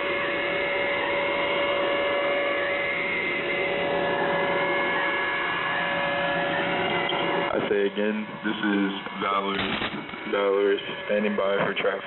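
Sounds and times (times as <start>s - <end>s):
faint wavering tone: 0.0s - 7.5s
radio static hiss: 6.9s - 12.0s.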